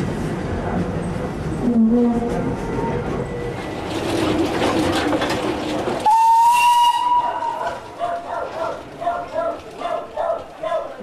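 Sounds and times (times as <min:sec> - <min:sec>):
steam tram running by: 0:00.0 - 0:11.0
steam whistle: 0:06.0 - 0:07.7.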